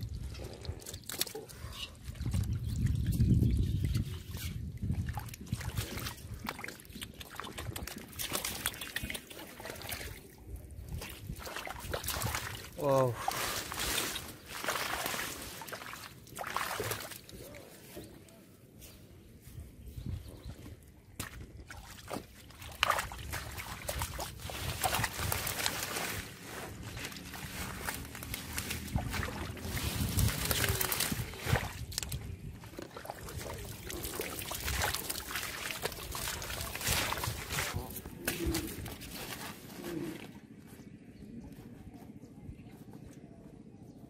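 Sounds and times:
wet mud squelches: 0.0 - 18.8, 20.4 - 41.2
hands splashing in muddy water: 2.1 - 17.6, 21.1 - 40.3.

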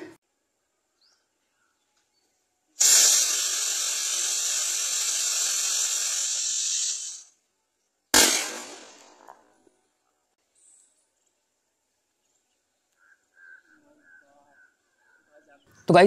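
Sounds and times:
firework rocket hissing: 2.8 - 7.4, 8.2 - 9.4
firework bang: 8.2 - 9.5.

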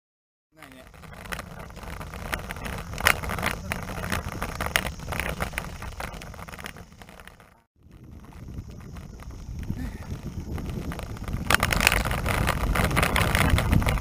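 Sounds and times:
bicycle tyres rumbling on paving: 0.6 - 14.0
sharp clicks and rattles: 0.6 - 14.0
wind on microphone: 0.6 - 14.0.

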